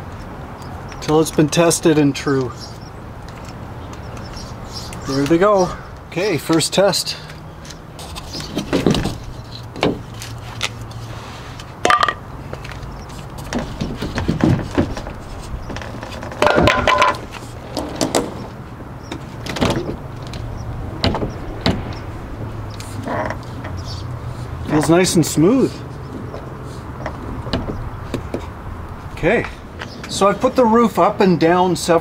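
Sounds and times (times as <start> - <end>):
roof panel knocking and clunking: 8.4 - 10.1, 13.5 - 22.5, 26.2 - 28.6.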